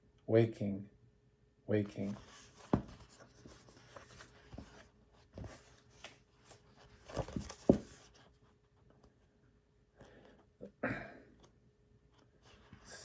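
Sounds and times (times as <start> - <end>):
paper pages rustling: 2.0 - 9.0.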